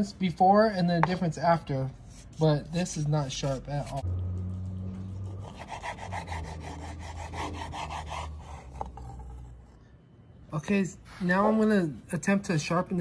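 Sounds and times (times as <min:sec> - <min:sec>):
low hum: 0:02.8 - 0:10.6
knife sawing raw chicken: 0:05.2 - 0:08.8.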